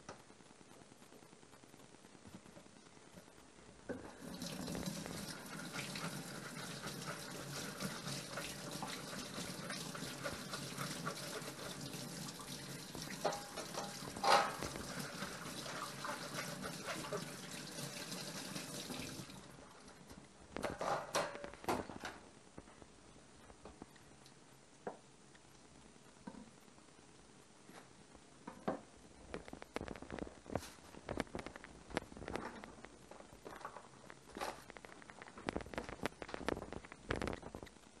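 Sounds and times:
tap running into sink: 13.0 - 17.2.

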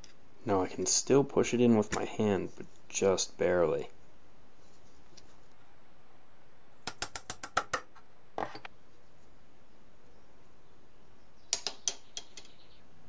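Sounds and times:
hammer tapping metal pin: 6.8 - 8.7.

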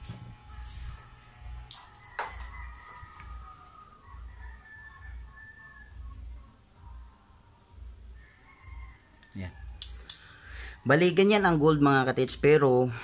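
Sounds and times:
chicken calling: 1.8 - 7.4
sharp clicks: 9.8 - 10.3.

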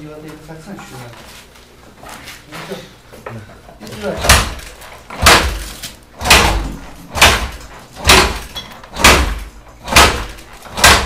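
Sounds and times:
kick-starter thumps: 4.0 - 11.0.

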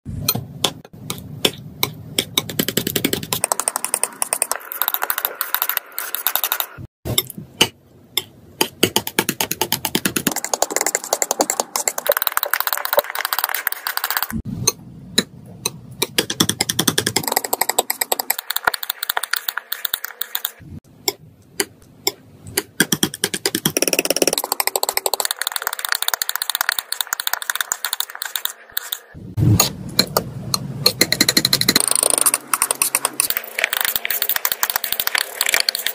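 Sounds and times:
palette knife mixing wet paint: 24.4 - 29.1.

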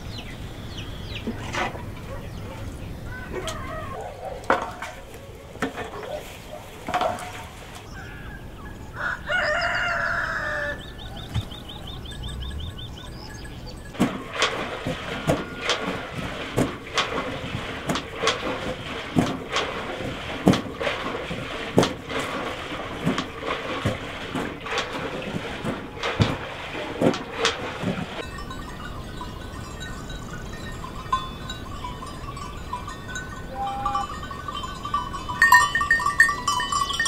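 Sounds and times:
rooster crowing: 3.4 - 4.2, 8.0 - 11.3
sharp knocks: 14.0 - 28.2
short high calls: 33.5 - 34.3.

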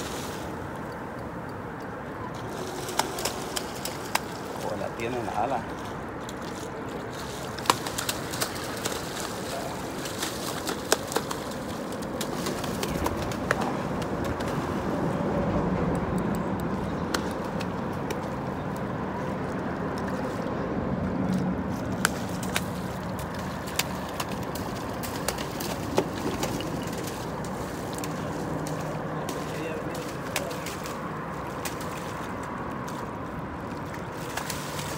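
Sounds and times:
fish thrashing and splashing: 1.7 - 15.1, 21.2 - 34.9.

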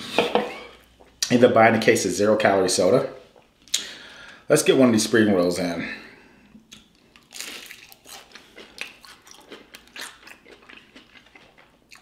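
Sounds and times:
crunchy chewing of spring roll: 6.7 - 12.0.

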